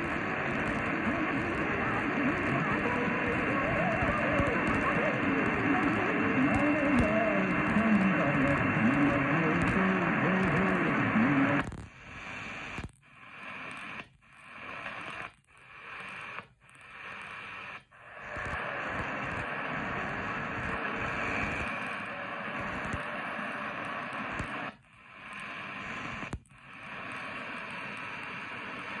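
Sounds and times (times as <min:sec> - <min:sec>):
voice on radio: 0:00.0 - 0:11.8
radio static hiss: 0:00.0 - 0:29.0.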